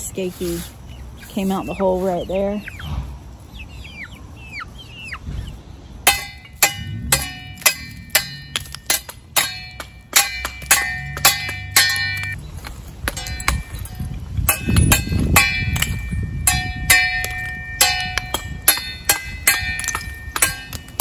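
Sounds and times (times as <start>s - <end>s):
chickens chirping: 0.0s - 8.8s
trowel striking bricks: 6.1s - 12.4s, 13.0s - 21.0s.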